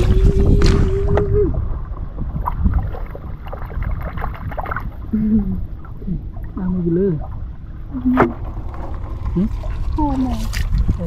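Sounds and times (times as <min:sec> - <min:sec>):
wind rumble on microphone: 0:00.0 - 0:11.0
floodwater running: 0:02.2 - 0:11.0
light water splashing: 0:02.2 - 0:11.0.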